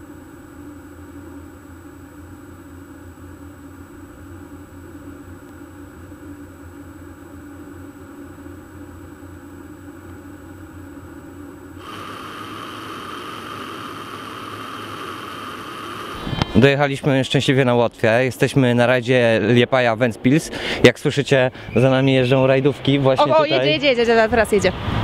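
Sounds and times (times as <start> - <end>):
car engine and road drone: 11.8 - 16.6
wind and tyre noise on snow: 24.4 - 25.0.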